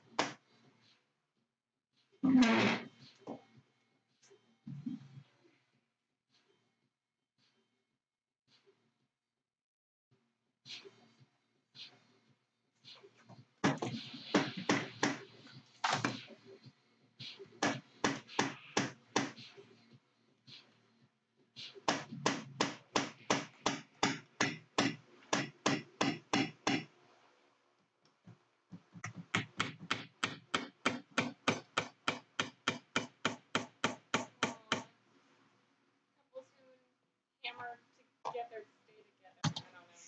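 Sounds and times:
hammer tapping on wooden board: 17.6 - 19.4, 21.9 - 26.9, 28.8 - 34.9.

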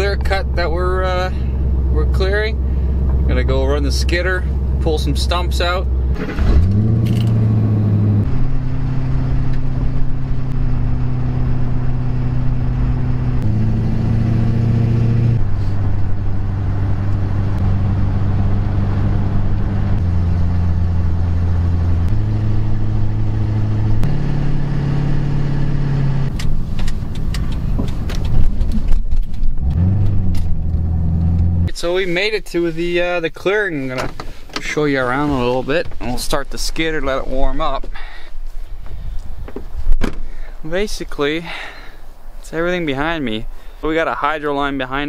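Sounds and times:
truck engine revving: 0.0 - 28.5, 29.6 - 31.7
road noise: 0.0 - 45.0.

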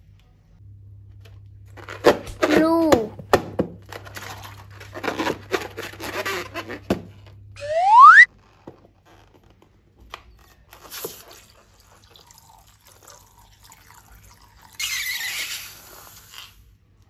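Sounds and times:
liquid pouring into bowl: 11.9 - 14.8.

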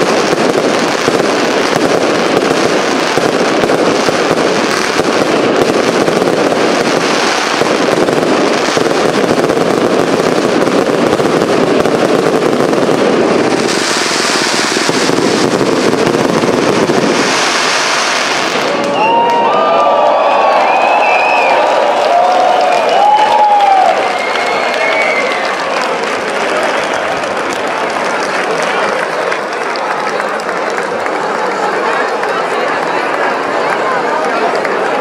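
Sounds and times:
firework barrage of shots: 0.0 - 19.5.

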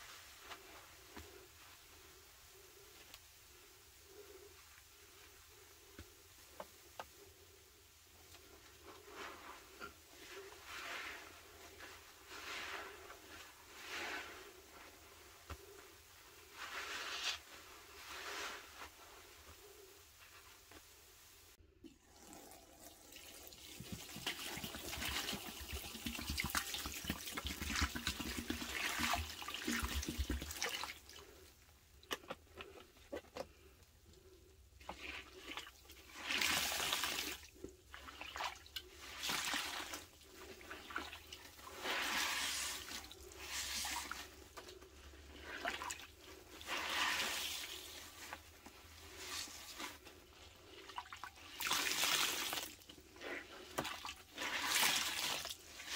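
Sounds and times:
sponges squelching when squeezed: 34.8 - 55.9
water pouring onto sponges: 34.8 - 55.9.

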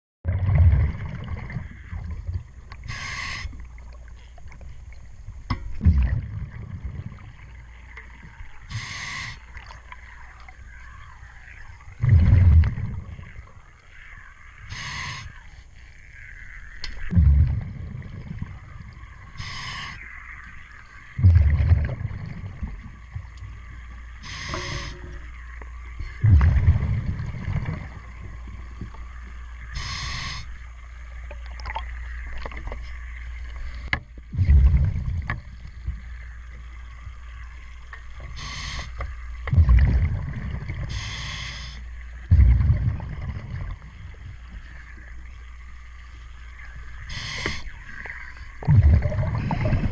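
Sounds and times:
exhaled bubbles: 0.2 - 5.0, 5.7 - 49.9
steady low hum: 0.3 - 49.9
regulator hissing inhale: 2.8 - 3.6, 8.7 - 9.5, 14.7 - 15.4, 19.4 - 20.0, 24.2 - 25.2, 29.7 - 30.6, 38.3 - 39.1, 40.8 - 42.0, 47.0 - 48.1.

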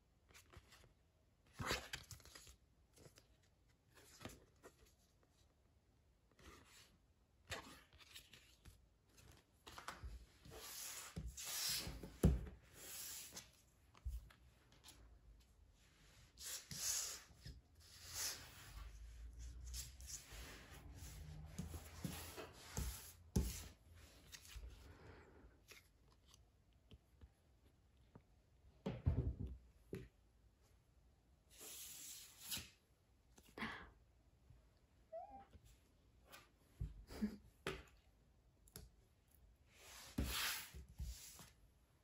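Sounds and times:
glossy pages flipping and rustling: 1.6 - 5.0.

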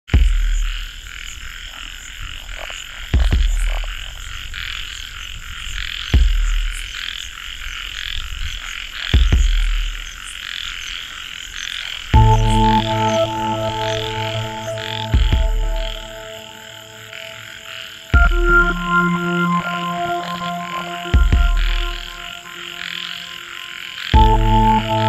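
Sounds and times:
frogs calling: 0.2 - 25.0
insects calling: 0.2 - 25.0
deep low thuds: 12.2 - 13.7, 14.4 - 16.3, 18.2 - 19.2, 21.2 - 22.3.

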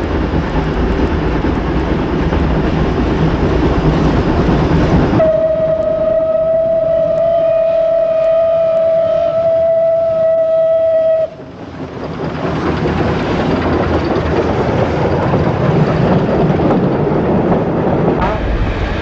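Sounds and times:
steam train passing: 0.0 - 19.0
steam locomotive whistle: 5.2 - 11.4.

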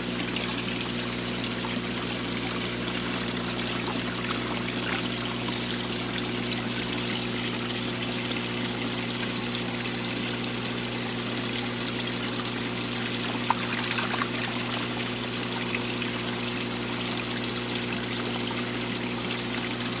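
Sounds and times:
water running and splashing: 0.0 - 20.0.

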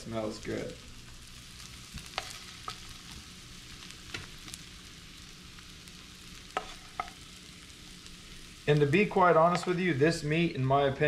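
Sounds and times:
pan sizzling: 0.0 - 11.0
wooden spatula scraping skillet: 6.5 - 7.2.

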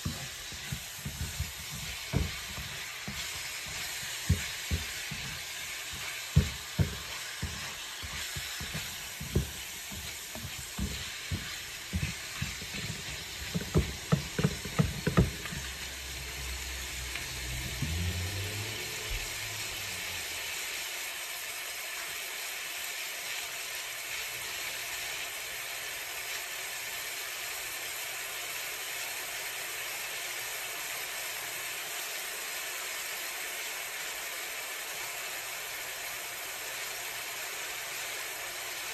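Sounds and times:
spatula scraping a pan: 0.0 - 17.8
meat sizzling in a skillet: 0.0 - 38.9.

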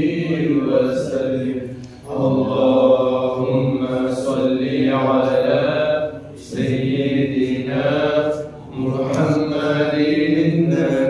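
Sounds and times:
men chanting unaccompanied: 0.0 - 11.0.

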